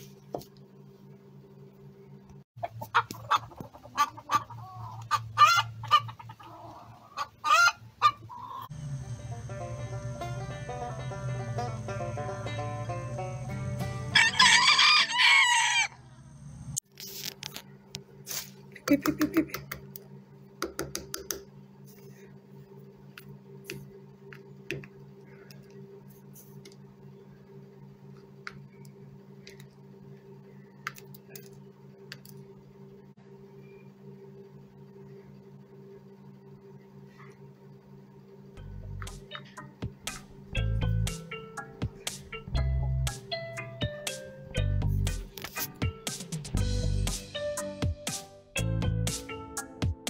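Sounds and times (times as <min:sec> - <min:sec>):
hen clucking: 0:02.6 - 0:08.7
low hum: 0:08.2 - 0:16.8, 0:21.8 - 0:46.0.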